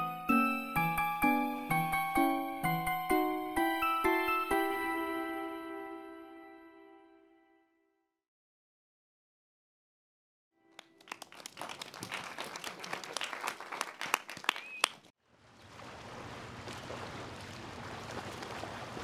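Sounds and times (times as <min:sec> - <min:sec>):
audience clapping: 0:10.7 - 0:15.1
short whistle: 0:14.5 - 0:15.0.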